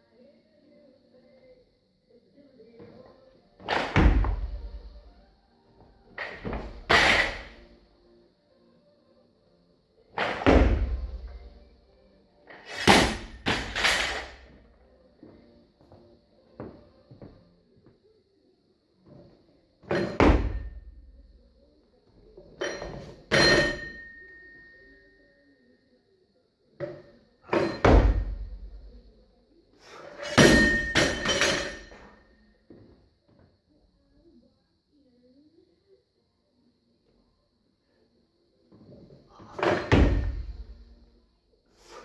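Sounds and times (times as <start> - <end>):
barbell dropped and bouncing: 3.6 - 4.8, 6.2 - 7.6, 10.2 - 11.3, 12.5 - 14.5, 19.8 - 20.8, 22.6 - 24.2, 26.8 - 28.6, 30.2 - 32.8, 39.6 - 40.7
barbell thudding on rubber floor: 10.3 - 11.3
metal ringing: 22.6 - 25.2, 30.2 - 32.2
barbell clanking: 30.2 - 32.1.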